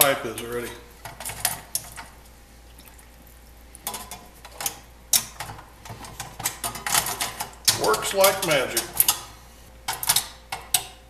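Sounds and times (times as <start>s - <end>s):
liquid sloshing: 1.8s - 4.8s
metal tongs clinking on pot: 6.4s - 9.3s.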